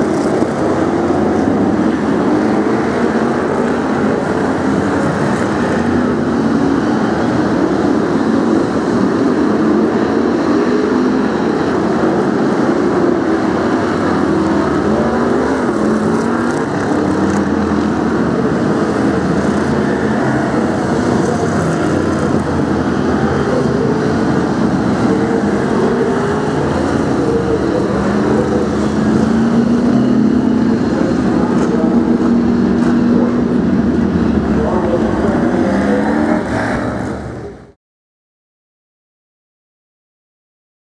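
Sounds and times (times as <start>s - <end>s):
racing car engines revving: 0.0s - 37.8s.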